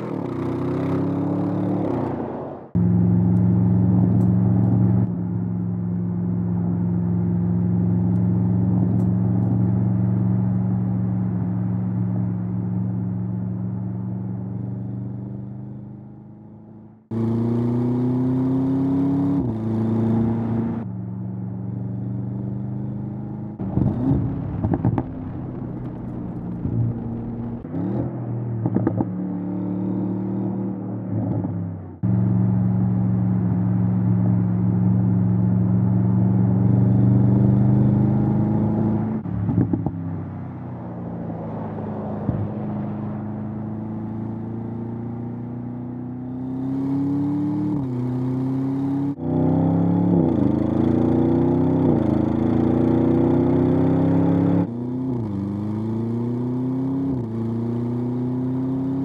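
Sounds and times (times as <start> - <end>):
car engine and exhaust: 0.0 - 59.0
exhaust cracks and pops: 23.6 - 27.6.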